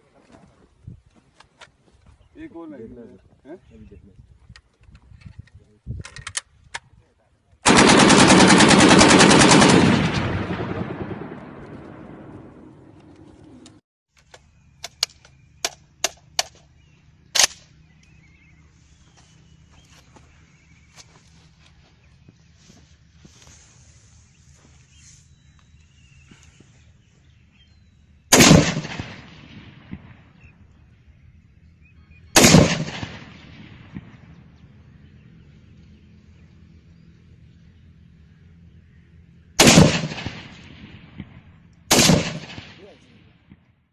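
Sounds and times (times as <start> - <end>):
sharp clicks or cracks: 4.6 - 6.9, 13.0 - 16.7, 17.3 - 18.2
automatic gunfire: 7.6 - 12.3, 28.3 - 29.7, 32.4 - 34.0, 39.6 - 40.6, 41.9 - 42.9
rifle shot with echo: 7.6 - 12.9, 28.3 - 30.6, 32.3 - 34.4, 39.6 - 43.7
faint bird chirps: 16.6 - 28.3, 30.4 - 32.4.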